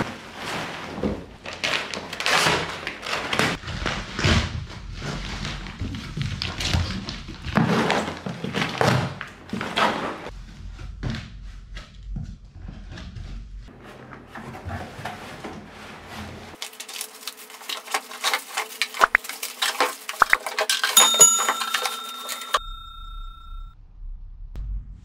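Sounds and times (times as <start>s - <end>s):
plastic wrap rustling: 0.0s - 10.3s, 14.3s - 22.6s
light knocks and clinks of parts: 18.7s - 23.3s.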